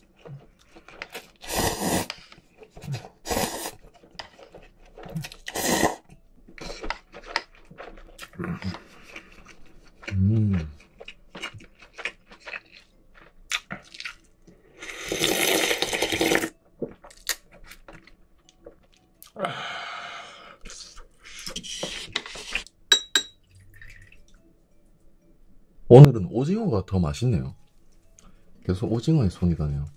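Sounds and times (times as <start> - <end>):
wet chewing: 0.0 - 19.4
slurping broth: 0.4 - 7.4, 14.8 - 16.5, 20.2 - 22.7.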